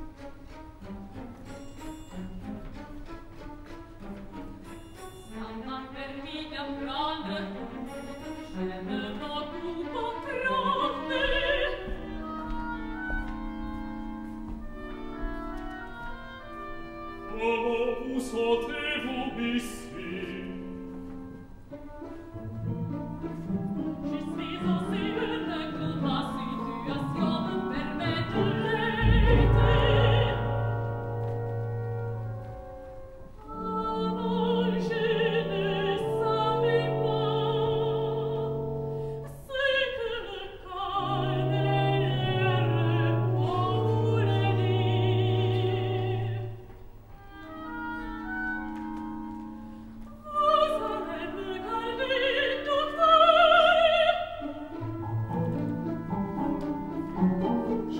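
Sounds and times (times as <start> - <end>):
orchestra playing low notes: 0.0 - 57.9
woman singing operatically: 5.4 - 7.7, 8.7 - 14.0, 15.0 - 20.8, 23.9 - 31.5, 33.4 - 46.6, 50.1 - 54.7.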